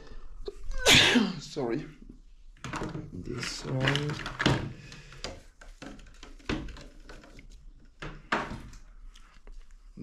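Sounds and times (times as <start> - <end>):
objects knocking when set down: 2.6 - 7.4.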